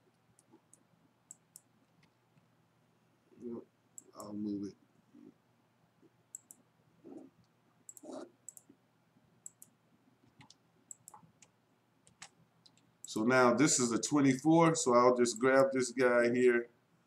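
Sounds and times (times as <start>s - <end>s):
computer mouse clicks: 0.4s - 2.5s, 6.3s - 8.8s, 9.4s - 13.2s.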